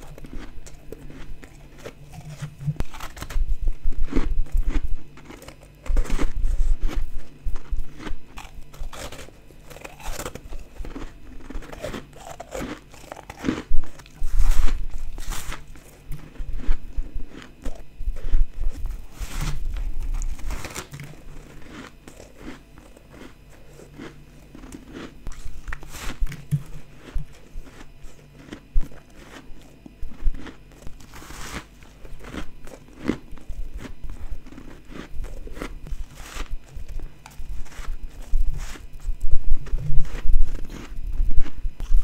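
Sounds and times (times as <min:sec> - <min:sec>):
person crunching ice: 0:00.0 - 0:38.9.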